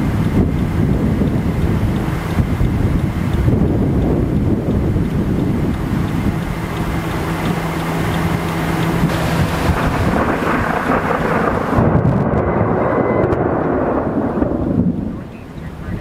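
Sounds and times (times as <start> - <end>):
wind buffeting microphone: 0.0 - 16.0
rolling thunder: 9.0 - 16.0.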